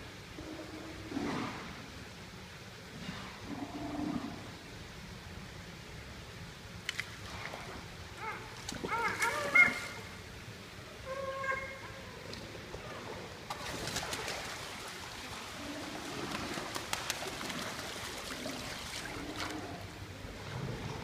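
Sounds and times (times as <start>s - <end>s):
pool water splashing: 3.6s - 21.0s
low cooing calls: 8.2s - 10.2s, 11.0s - 13.3s.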